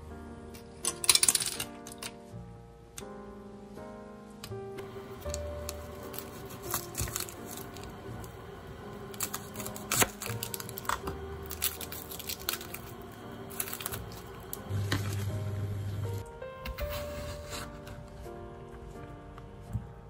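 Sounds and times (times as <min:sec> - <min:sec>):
background music: 0:00.0 - 0:20.0
onion skin crackling and tearing: 0:05.2 - 0:08.3, 0:08.9 - 0:15.4.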